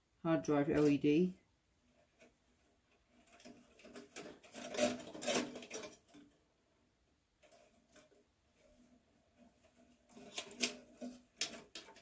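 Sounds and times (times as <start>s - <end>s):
wires rattling against metal case: 1.9s - 6.4s, 7.4s - 12.0s.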